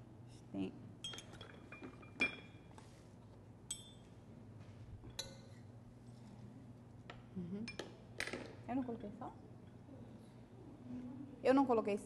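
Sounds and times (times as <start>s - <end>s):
metal spoon clinking against bowl: 1.0s - 2.6s, 3.7s - 4.0s.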